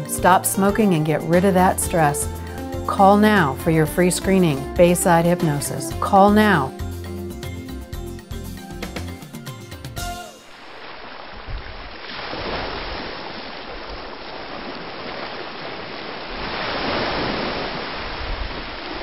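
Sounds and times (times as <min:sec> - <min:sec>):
ocean waves breaking: 0:10.3 - 0:19.0.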